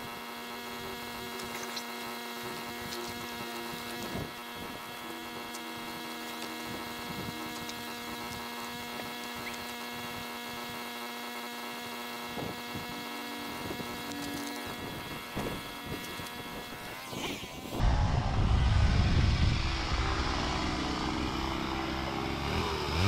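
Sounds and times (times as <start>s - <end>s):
steady hum with overtones: 0.0s - 23.0s.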